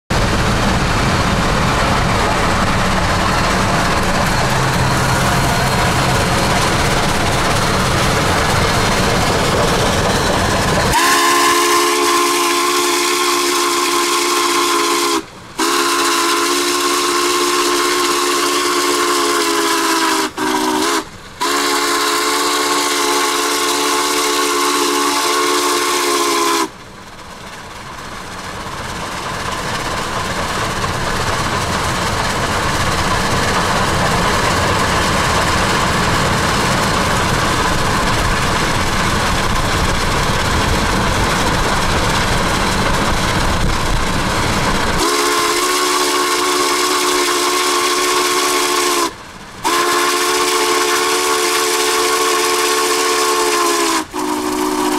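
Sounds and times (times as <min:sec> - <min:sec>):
steam whistle chord: 0:10.9 - 0:26.7, 0:45.0 - 0:54.9.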